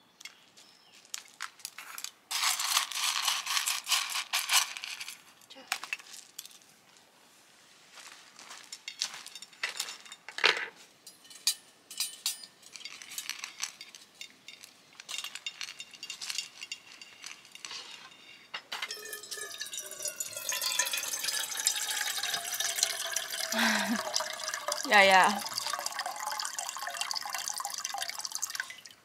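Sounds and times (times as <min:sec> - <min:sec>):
dishes clinking: 0:08.9 - 0:28.9
liquid pouring into container: 0:18.9 - 0:29.0.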